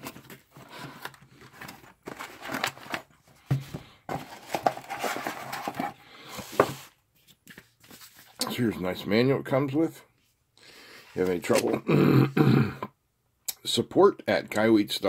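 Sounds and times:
cardboard and paper rustling: 0.0s - 8.4s, 11.1s - 11.8s.

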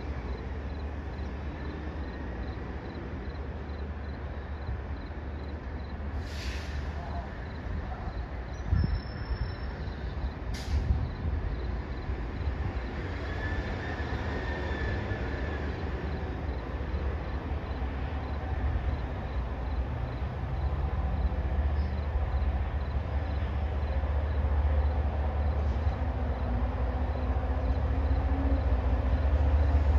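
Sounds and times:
diesel train rumble: 0.0s - 29.9s.

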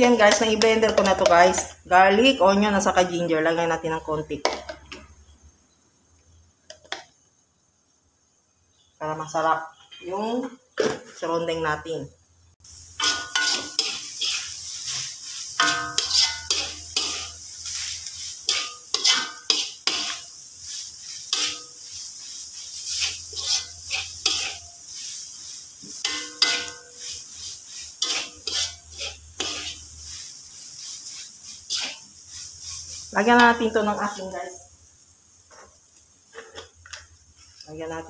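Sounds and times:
frying sizzle: 0.0s - 10.5s, 11.2s - 38.0s
metal spatula scraping wok: 12.9s - 34.3s.

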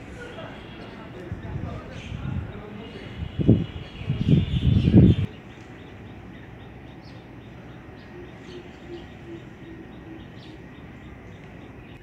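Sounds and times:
bird chirping rapidly: 0.4s - 12.0s
dove cooing: 7.9s - 11.3s.

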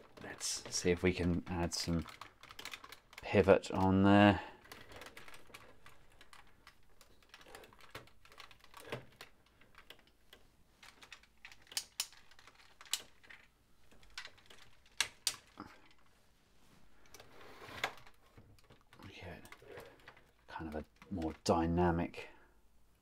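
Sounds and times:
plastic toy joints clicking: 0.0s - 4.0s, 10.8s - 16.1s.

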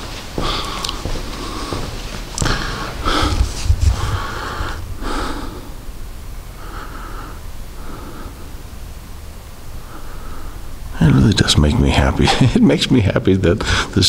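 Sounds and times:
person breathing heavily: 0.0s - 10.9s, 13.6s - 14.0s.

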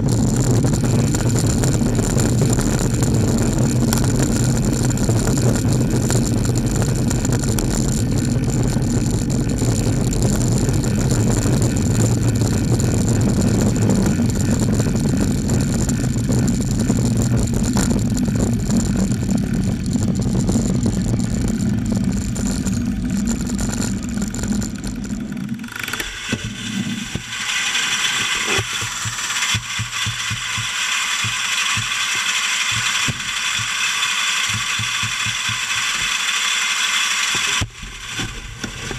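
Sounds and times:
traffic rumble: 0.0s - 25.9s
bicycle freewheel ticking: 0.0s - 38.9s
lorry diesel engine running: 0.0s - 38.9s.

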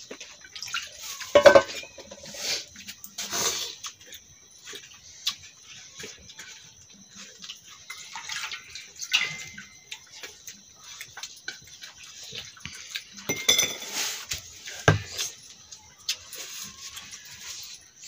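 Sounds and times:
metal dishes clinking and scraping: 0.8s - 2.4s, 7.8s - 10.1s, 13.1s - 15.3s.

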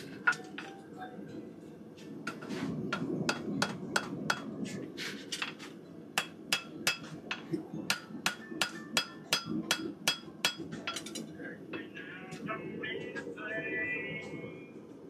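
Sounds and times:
hammer striking horseshoe on anvil: 6.2s - 11.3s.

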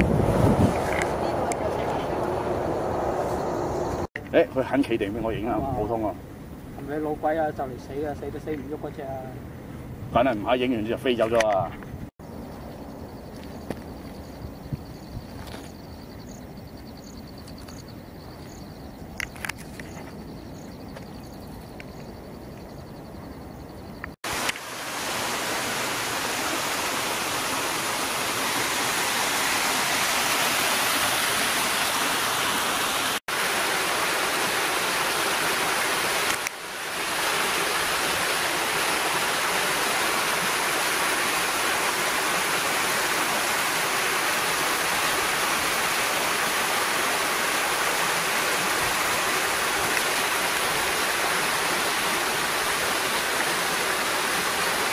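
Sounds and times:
waterfall and stream rushing: 0.0s - 9.1s, 24.2s - 54.9s
open-air ambience: 0.0s - 54.9s.

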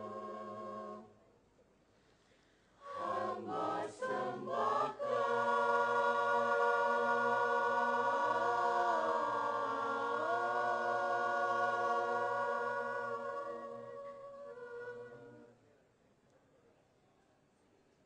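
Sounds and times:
mixed choir singing: 0.0s - 1.1s, 2.8s - 15.5s.

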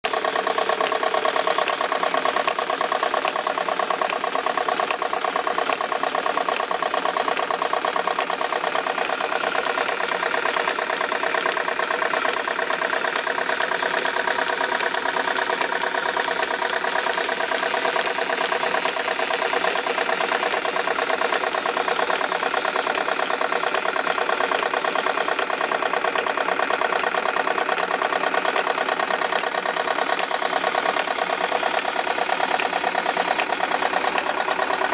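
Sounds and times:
belt-driven line shafts running: 0.0s - 34.9s
model steam engine chuffing: 0.0s - 34.9s.

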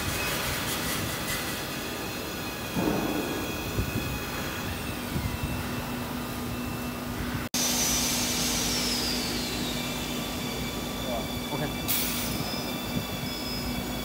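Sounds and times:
high whine sliding down: 0.0s - 14.0s
machine hiss and low hum: 0.0s - 14.0s.

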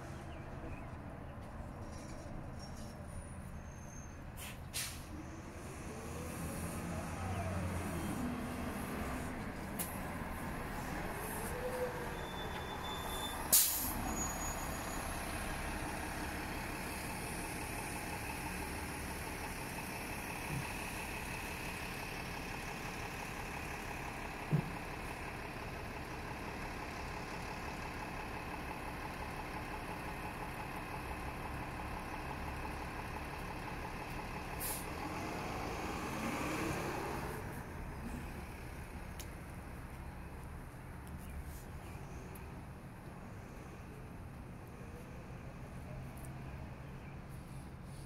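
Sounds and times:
buses idling: 0.0s - 48.0s
air brakes hissing: 3.6s - 10.0s, 11.2s - 15.4s, 34.6s - 35.0s.

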